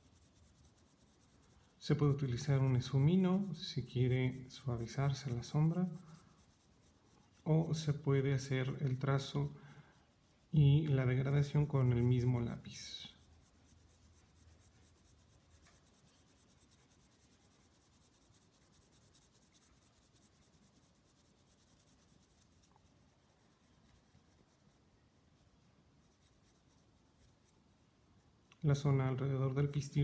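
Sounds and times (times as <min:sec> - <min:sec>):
pencil scratching on paper: 0:00.0 - 0:30.0.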